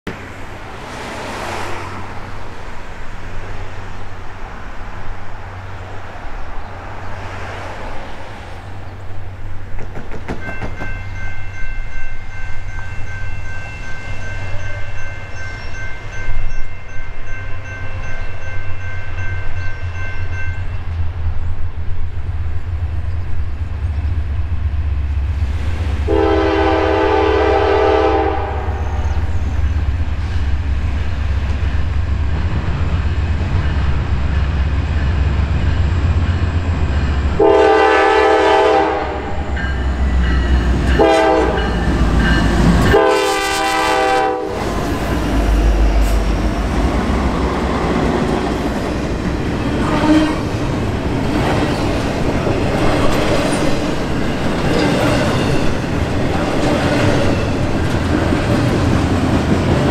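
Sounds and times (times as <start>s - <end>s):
locomotive rumble: 0.1s - 59.9s
locomotive air horn blast: 26.0s - 29.0s, 37.4s - 39.5s, 40.9s - 41.8s, 42.5s - 44.8s, 49.8s - 50.5s.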